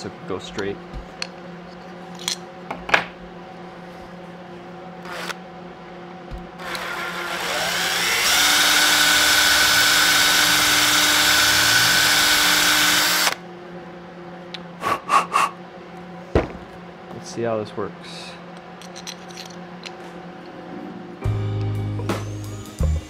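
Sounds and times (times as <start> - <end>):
cordless drill spinning: 5.0 - 5.4, 6.6 - 13.4.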